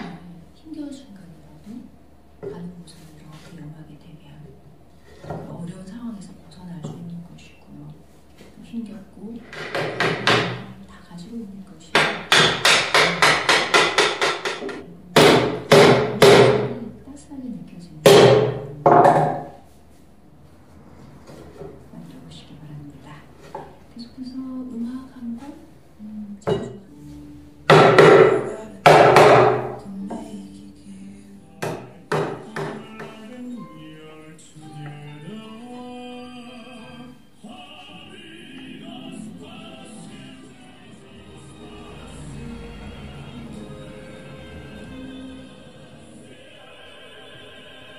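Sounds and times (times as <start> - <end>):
mallet striking wooden chair legs: 9.6 - 10.7, 12.0 - 16.8, 18.1 - 19.6, 27.7 - 29.8, 31.6 - 33.3
background music: 25.8 - 47.9.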